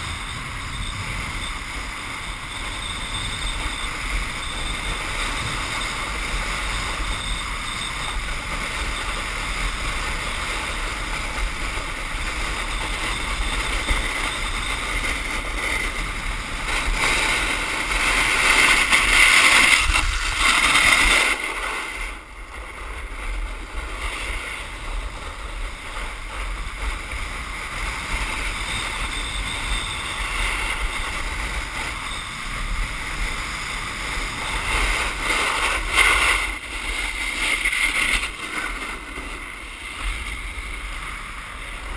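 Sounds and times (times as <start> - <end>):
wind on microphone: 0.0 - 41.9
board running over ice: 10.8 - 25.0.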